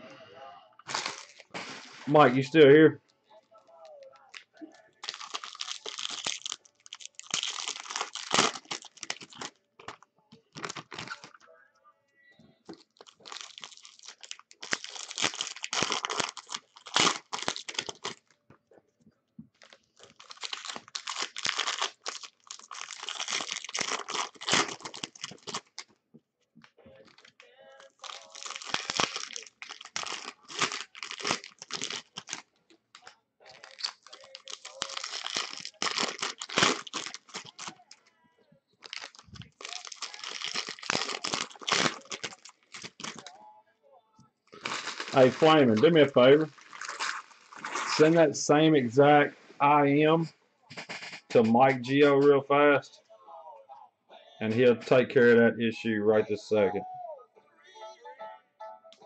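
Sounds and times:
foil wrappers tearing and crinkling: 0.9s - 2.6s, 5.0s - 11.3s, 12.7s - 18.4s, 19.6s - 25.9s, 27.0s - 37.9s, 38.8s - 43.3s, 44.5s - 48.2s.

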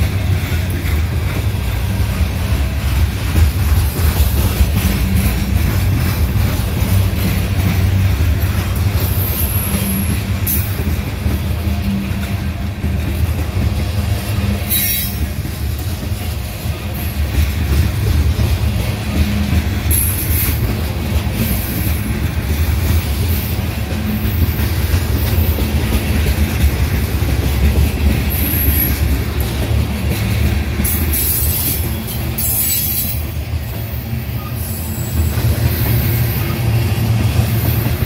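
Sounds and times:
freight train rumbling past: 0.0s - 38.0s
wheel squeal: 9.0s - 10.8s, 30.8s - 33.3s.

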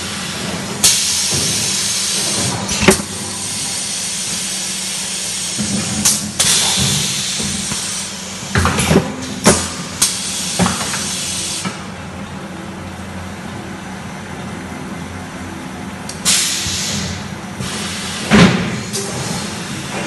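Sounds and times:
machinery humming: 0.0s - 20.0s.

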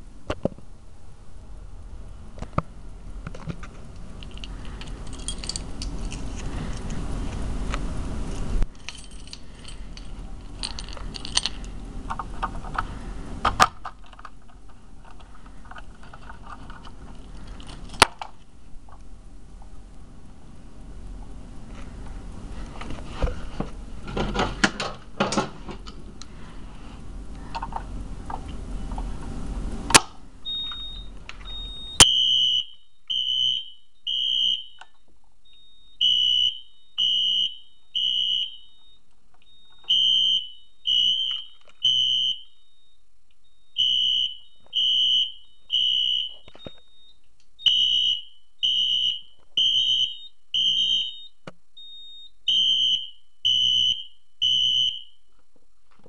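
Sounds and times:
rustling and clicks: 2.4s - 19.8s
fire alarm beeping: 30.4s - 55.2s.

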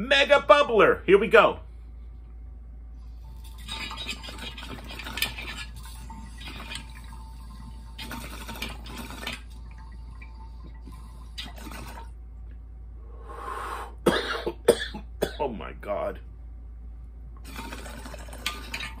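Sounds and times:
water bubbling in glass bubbler: 3.3s - 12.2s, 17.4s - 19.0s.

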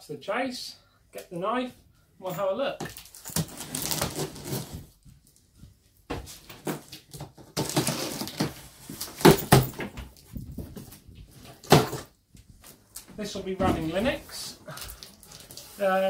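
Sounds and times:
knife slitting packing tape: 3.3s - 4.6s.

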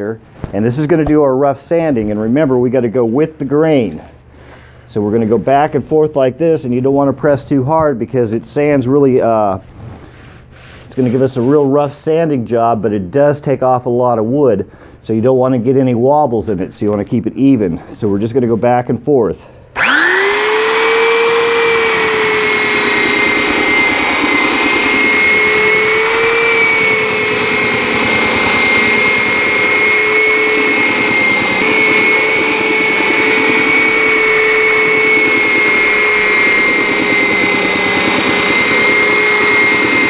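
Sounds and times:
belt sander motor whine: 19.8s - 40.0s.

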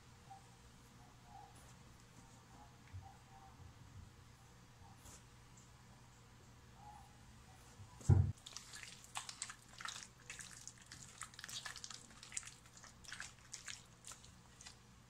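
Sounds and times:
thump: 8.0s - 8.3s
wet squelches of raw chicken: 8.3s - 14.9s.

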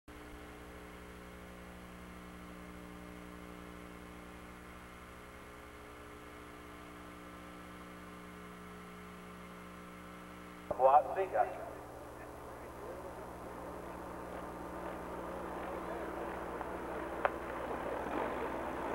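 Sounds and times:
electrical mains hum: 0.1s - 18.9s.

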